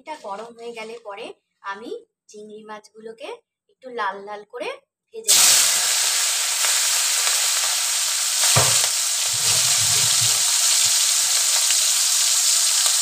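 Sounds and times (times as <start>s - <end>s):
prawns sizzling in hot oil: 5.3s - 13.0s
knock: 8.4s - 10.5s.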